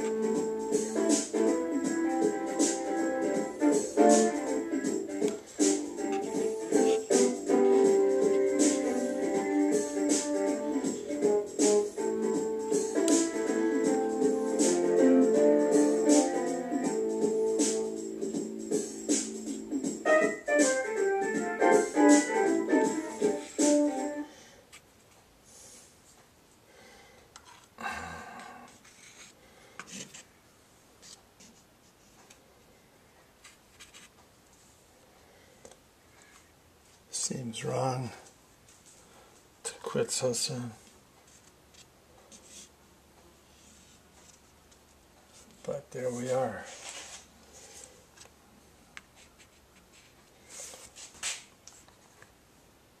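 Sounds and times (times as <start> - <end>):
brush scratching on paper: 42.3 - 42.7, 45.3 - 47.9.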